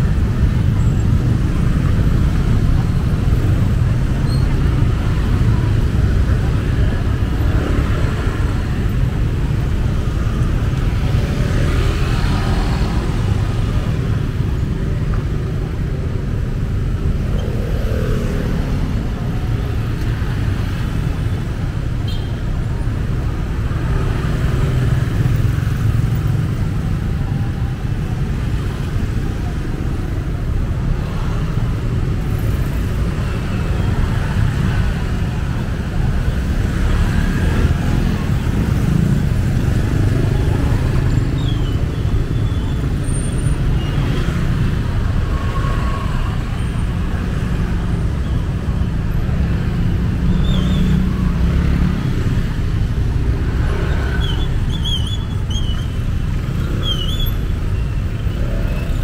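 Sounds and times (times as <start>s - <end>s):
road traffic rumble: 0.0s - 59.0s.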